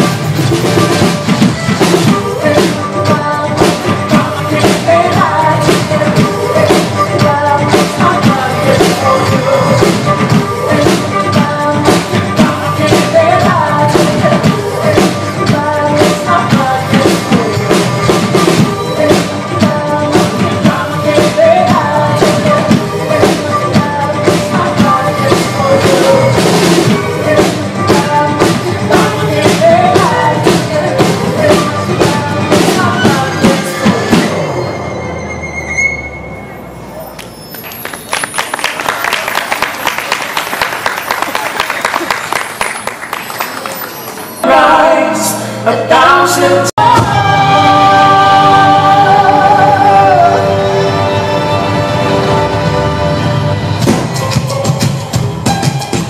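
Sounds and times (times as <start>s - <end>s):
drum kit beat: 0.0s - 34.6s, 52.2s - 56.0s.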